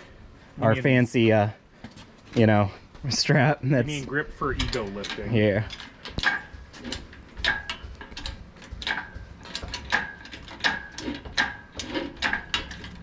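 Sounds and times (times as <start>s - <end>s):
hoist pump metallic click: 4.5s - 13.0s.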